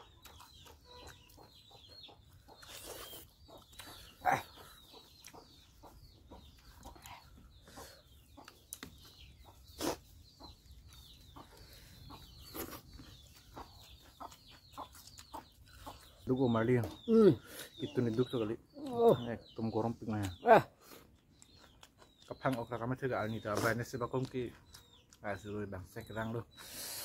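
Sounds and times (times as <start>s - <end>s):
wet chewing and lip smacks: 0.0s - 16.2s, 20.2s - 22.8s, 23.4s - 25.2s.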